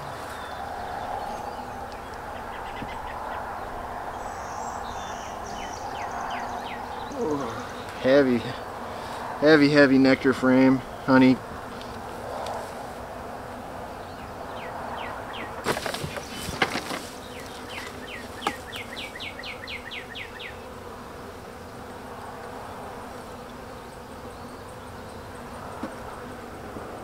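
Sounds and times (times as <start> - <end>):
honey bees buzzing: 0.0 - 27.0
wooden hive frames knocking: 15.4 - 19.0, 25.7 - 26.2.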